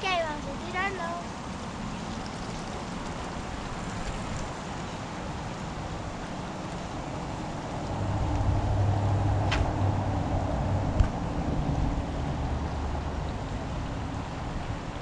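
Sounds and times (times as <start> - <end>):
creek flowing over rocks: 0.0 - 15.0
low hum: 7.2 - 14.9.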